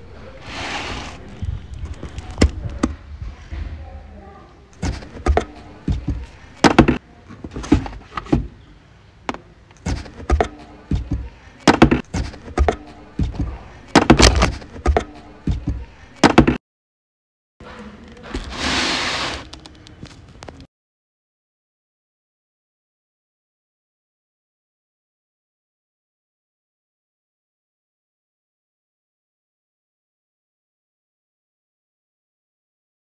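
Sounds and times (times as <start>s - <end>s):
knocks and scrapes on cardboard: 0.4s - 1.3s, 4.8s - 8.5s, 9.8s - 16.6s, 18.2s - 19.5s
cardboard flaps rustling: 4.8s - 8.5s, 9.8s - 16.6s.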